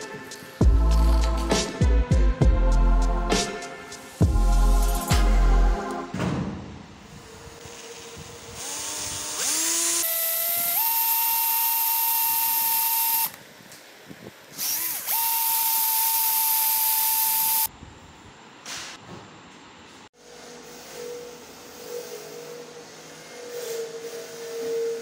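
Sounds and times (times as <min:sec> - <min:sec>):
electric drill boring into wood: 0:08.4 - 0:13.4, 0:14.6 - 0:17.7.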